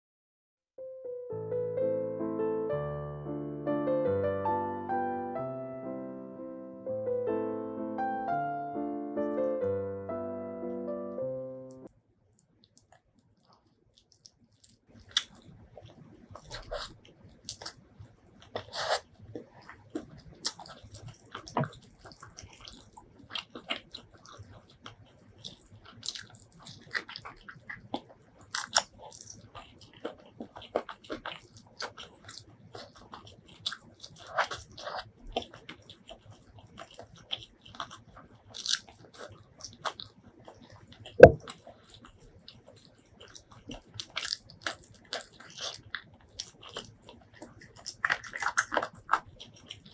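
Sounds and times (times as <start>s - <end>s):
wet chewing and lip smacks: 12.4s - 49.9s
loud thump: 41.2s - 41.4s.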